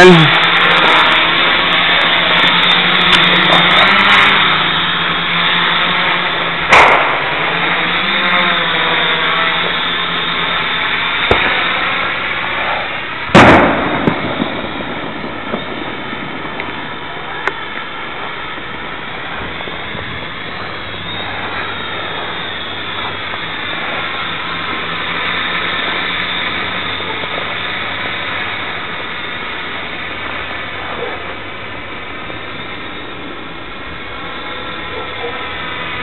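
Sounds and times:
drone propellers buzzing: 0.0s - 36.0s
sharp bangs: 6.6s - 7.6s, 11.2s - 11.8s, 13.3s - 17.7s.

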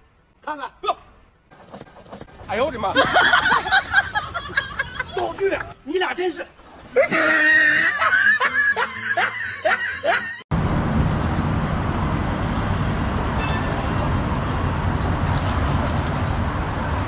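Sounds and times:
person laughing: 2.8s - 5.7s, 6.9s - 10.4s
road traffic hiss: 10.5s - 17.0s.

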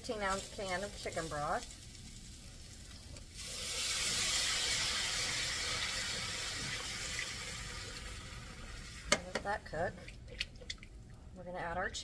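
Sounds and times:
broth hissing in hot skillet: 0.1s - 8.9s.

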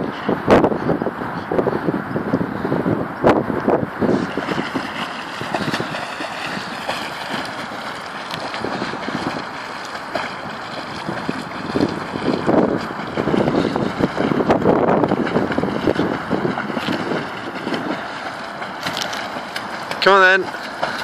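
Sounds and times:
dog splashing through water: 4.2s - 21.0s.

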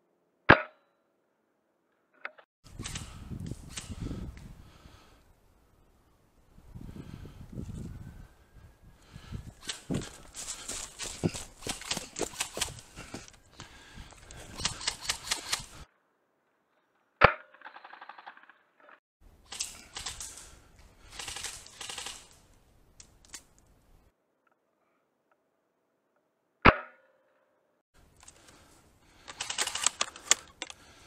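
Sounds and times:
crunching in dry leaves: 9.6s - 12.9s
rustling: 9.6s - 15.8s.

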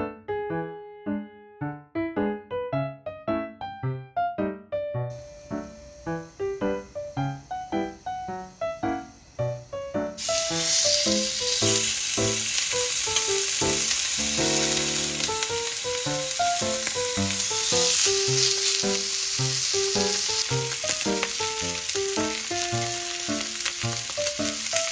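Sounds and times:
background piano music: 0.0s - 24.9s
meat sizzling in a grill pan: 10.1s - 24.9s.

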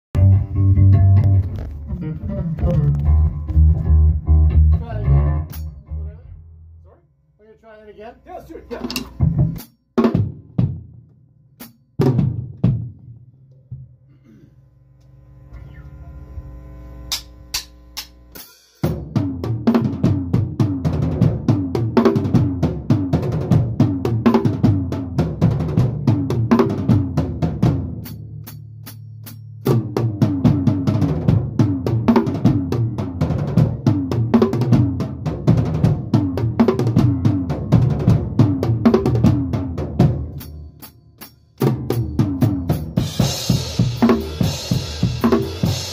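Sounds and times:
electric bass guitar: 0.1s - 7.0s, 15.2s - 17.5s, 29.6s - 40.5s
rock band playing: 0.2s - 6.4s, 29.2s - 45.9s
guitar: 0.2s - 6.5s, 15.0s - 45.9s
drums and cymbal hits: 8.3s - 11.0s, 11.6s - 14.4s, 17.1s - 45.9s.

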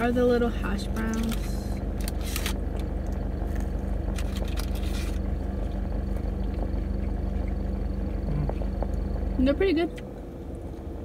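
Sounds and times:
car engine idling: 0.0s - 11.0s
crunchy chewing: 0.9s - 9.4s.

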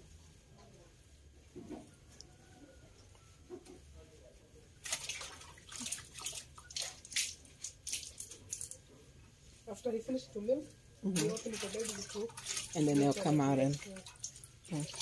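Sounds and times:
water splashing and dripping: 4.8s - 8.9s, 11.0s - 15.0s.

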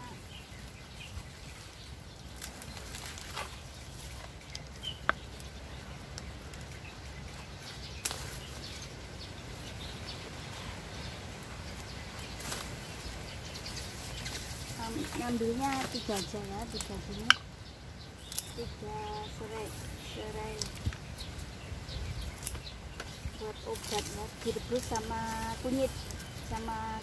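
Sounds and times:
leaves rustling: 0.0s - 27.0s
wind rumble on microphone: 18.5s - 27.0s.

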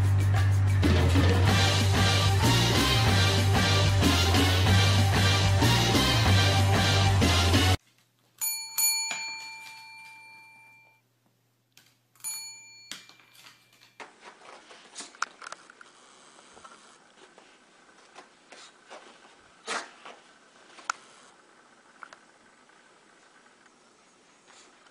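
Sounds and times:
desk service bell dinging: 8.4s - 11.0s, 12.2s - 13.9s.

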